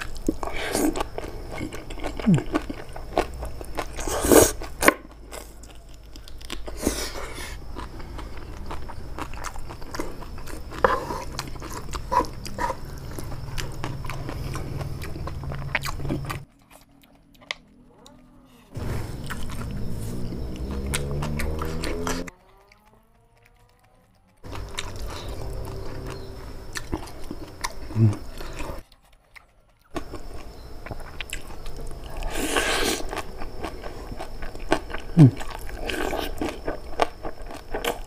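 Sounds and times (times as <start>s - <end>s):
wet chewing with crunches: 0.0s - 38.0s
sucking stems: 18.4s - 22.8s.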